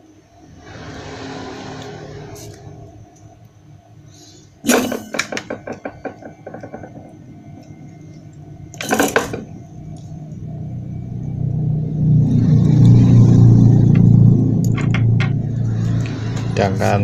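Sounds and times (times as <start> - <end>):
low steady hum: 0.0 - 17.0
short scrape: 0.5 - 3.1.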